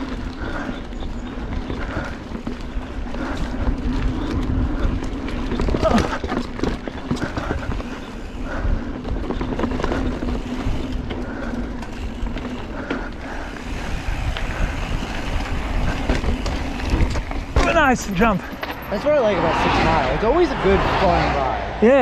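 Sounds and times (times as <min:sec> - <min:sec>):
bike clicks and rattles: 0:00.0 - 0:19.4
bike tyres rolling on dirt: 0:00.0 - 0:22.0
wind rumble on microphone: 0:13.6 - 0:17.6.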